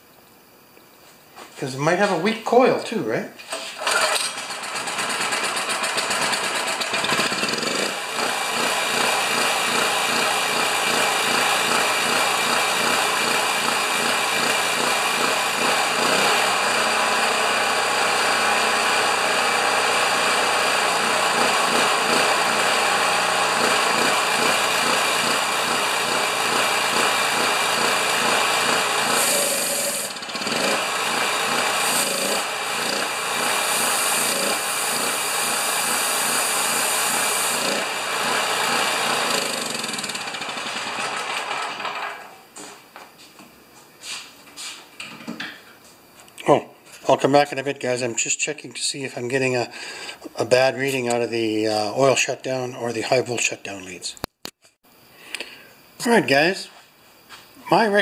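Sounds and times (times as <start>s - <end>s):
generator engine running: 3.6s - 42.2s.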